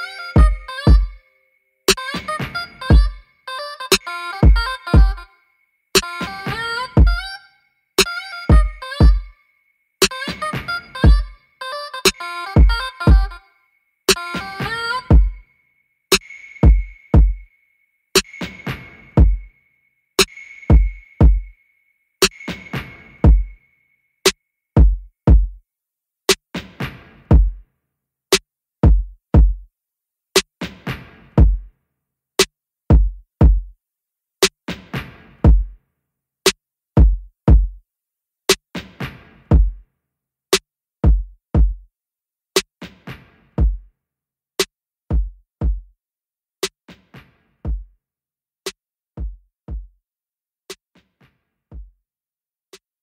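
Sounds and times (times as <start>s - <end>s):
electronic drum beat: 0.0s - 1.2s, 1.9s - 3.2s, 3.9s - 5.3s, 6.0s - 7.3s, 8.0s - 9.3s, 10.0s - 11.4s, 12.0s - 13.4s, 14.1s - 15.4s, 16.1s - 17.5s, 18.2s - 19.5s, 20.2s - 21.6s, 22.2s - 23.6s, 24.8s - 25.6s, 26.6s - 27.6s, 28.8s - 29.7s, 30.4s - 31.7s, 32.9s - 33.7s, 34.7s - 35.8s, 37.0s - 37.8s, 38.8s - 39.8s, 41.0s - 41.8s, 43.6s - 43.9s, 45.1s - 45.9s, 47.7s - 48.0s, 49.2s - 50.0s, 51.7s - 52.0s.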